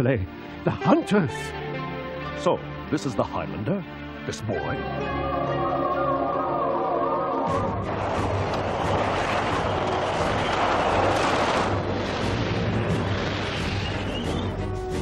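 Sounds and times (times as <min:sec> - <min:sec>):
armoured vehicles rumbling: 0:07.6 - 0:14.7.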